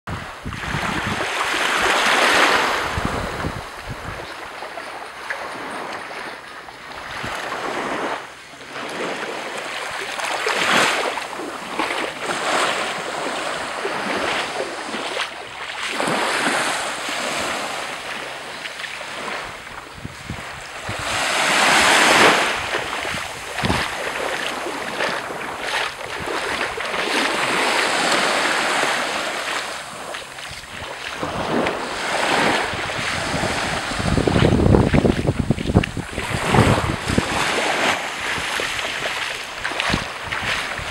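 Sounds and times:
wind buffeting microphone: 0.1s - 8.2s, 18.2s - 40.9s
waves washing onto beach: 0.1s - 40.9s.

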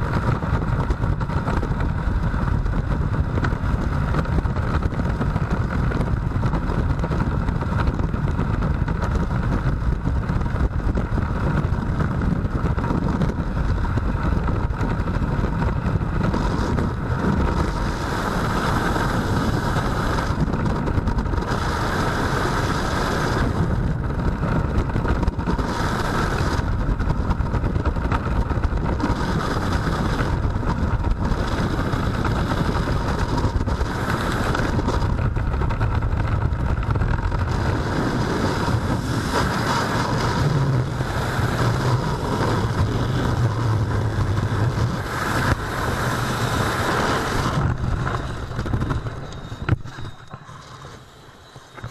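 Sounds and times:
freefall wind rushing: 9.3s - 50.2s.

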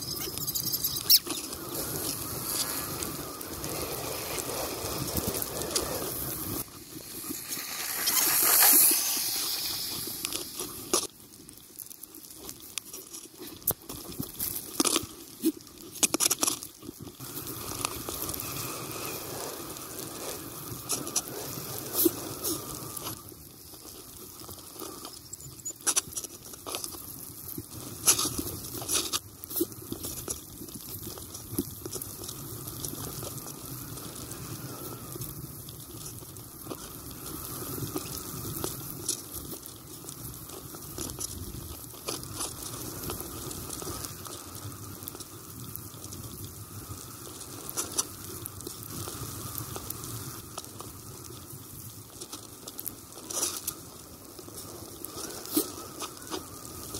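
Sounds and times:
bicycle tyres crunching on snow: 0.0s - 56.9s.

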